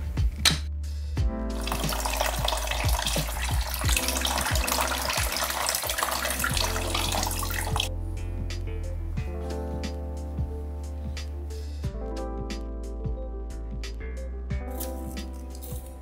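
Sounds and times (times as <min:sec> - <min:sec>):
background music: 0:00.0 - 0:16.0
tap water running onto metal: 0:01.6 - 0:07.9.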